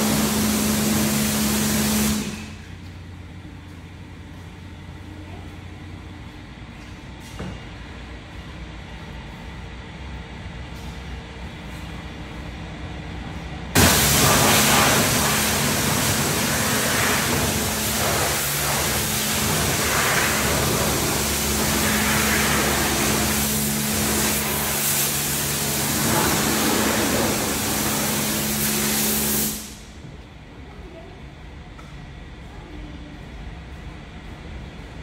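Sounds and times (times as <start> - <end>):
pressure washer spraying water: 0.0 - 2.6, 13.8 - 29.9.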